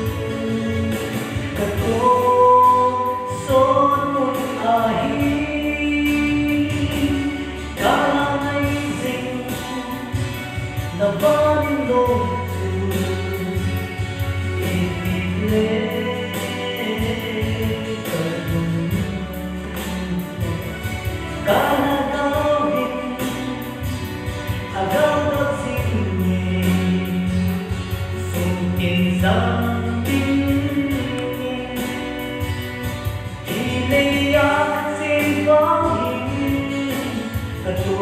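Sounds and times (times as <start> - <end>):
backing music track: 0.0 - 38.0
man singing into microphone: 0.0 - 38.0.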